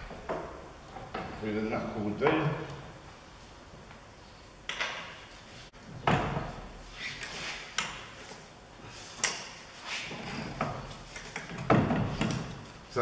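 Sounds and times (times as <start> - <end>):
metal clunks and knocks: 10.4 - 12.6.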